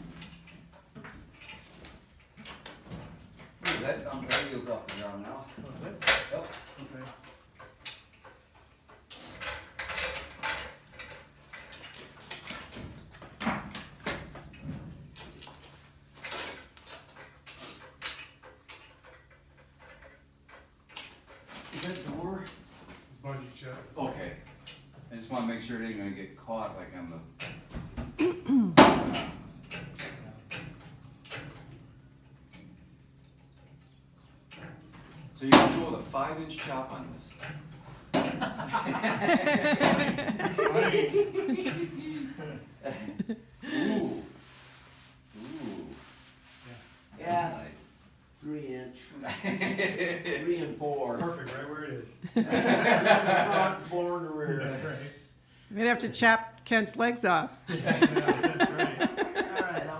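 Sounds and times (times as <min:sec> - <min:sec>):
metal knocks and clanks: 0:00.0 - 0:15.4
metal clanks and rattles: 0:00.0 - 0:25.2, 0:28.8 - 0:42.8.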